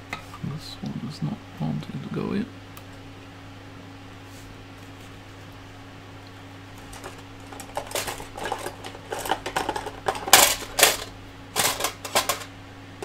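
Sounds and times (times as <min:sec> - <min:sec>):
steady low hum: 0:00.0 - 0:13.0
plastic part clicking and rattling: 0:06.9 - 0:12.5.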